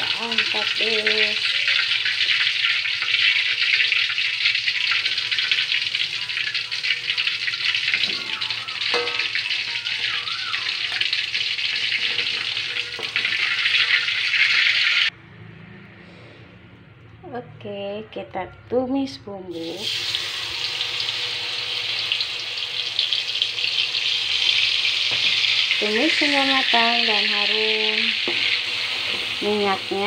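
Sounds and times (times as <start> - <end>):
oil sizzling in a wok: 0.0 - 15.1, 19.5 - 30.0.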